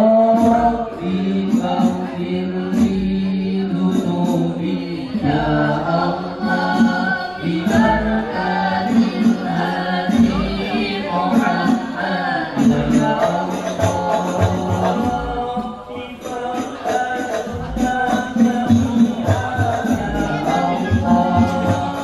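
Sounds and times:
frame drums beating: 0:00.0 - 0:22.0
voices singing devotional song: 0:00.0 - 0:22.0.

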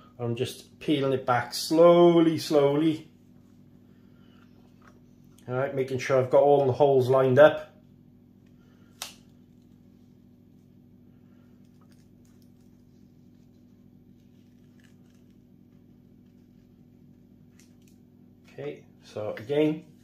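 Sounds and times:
faint low hum: 0:00.0 - 0:20.0
vinyl being peeled and pressed: 0:11.8 - 0:18.1.

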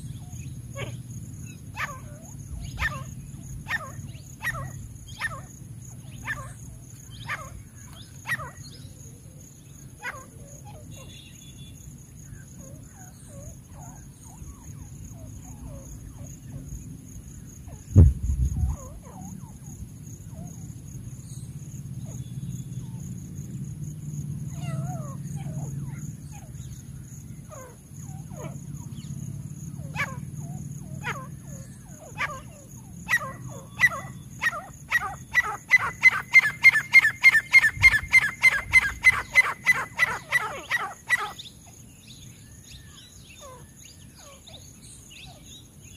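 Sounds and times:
francolin calling: 0:00.0 - 0:16.9, 0:24.5 - 0:45.9
loud thump: 0:18.0 - 0:18.6.

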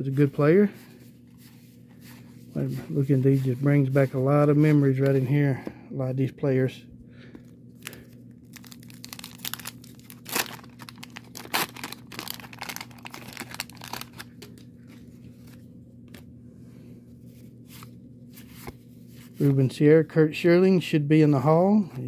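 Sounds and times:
waxed paper wrapper crinkling: 0:07.8 - 0:16.3
paper tearing: 0:08.6 - 0:14.2.

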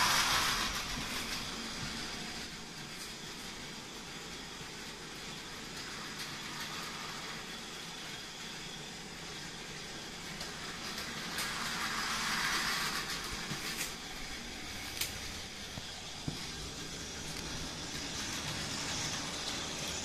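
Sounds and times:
toy train motor whir: 0:00.0 - 0:20.0
wheels rattling on rails: 0:10.3 - 0:20.0.

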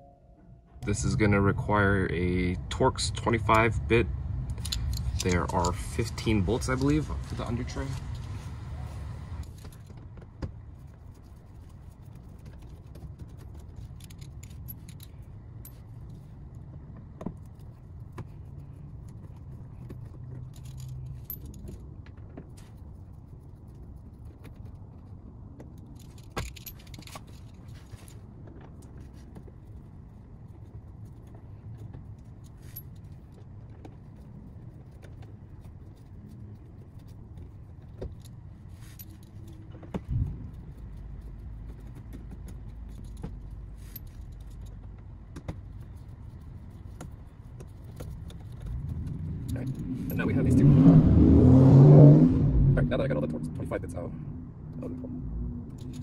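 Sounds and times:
steady low hum: 0:00.0 - 0:51.7
metallic clicks of screwdriver and screws: 0:04.5 - 0:07.0.

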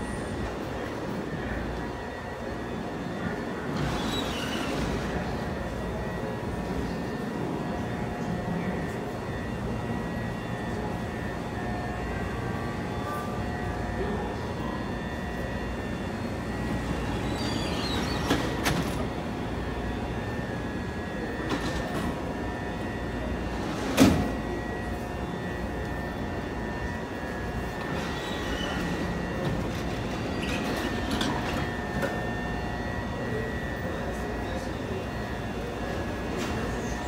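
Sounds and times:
train equipment hum and whine: 0:00.0 - 0:37.0.

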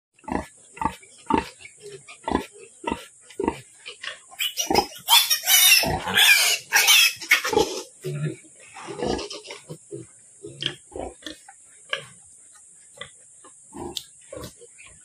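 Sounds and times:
piglets squealing: 0:04.3 - 0:07.9.

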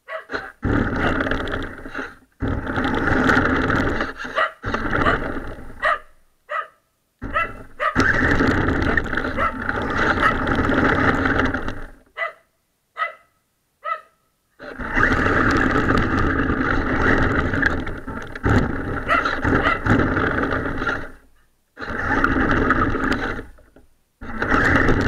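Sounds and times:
dog barking: 0:00.0 - 0:01.2, 0:04.2 - 0:05.2, 0:05.8 - 0:08.1, 0:09.4 - 0:09.6, 0:12.2 - 0:14.2, 0:19.1 - 0:19.9
toy car motor on gravel: 0:00.2 - 0:06.2, 0:07.2 - 0:12.2, 0:14.6 - 0:25.0.

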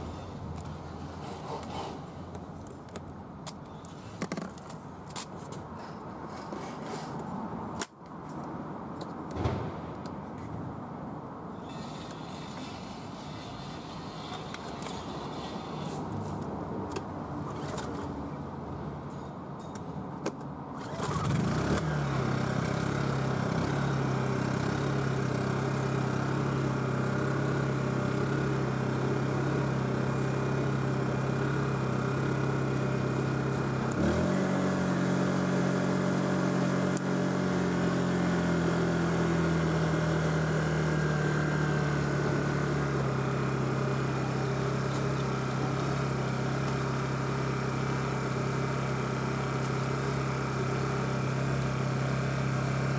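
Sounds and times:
generator engine pull-started: 0:20.7 - 0:31.2
generator engine running: 0:20.8 - 0:52.9.

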